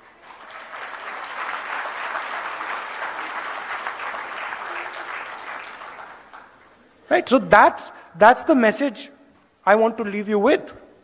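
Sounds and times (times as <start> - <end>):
large audience applauding: 0.0 - 6.8.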